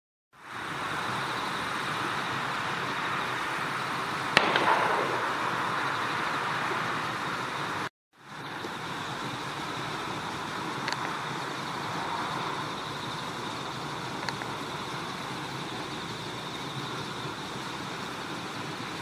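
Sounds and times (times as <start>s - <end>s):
outdoor background hiss: 0.4s - 19.0s
sharp click: 4.4s - 5.2s.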